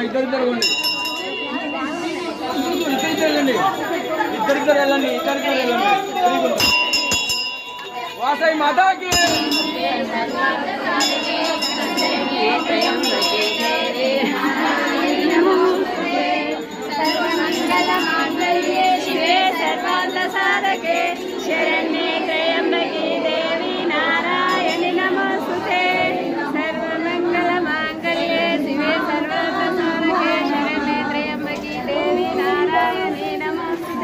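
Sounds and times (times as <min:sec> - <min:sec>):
women singing together: 0:09.2 - 0:34.0.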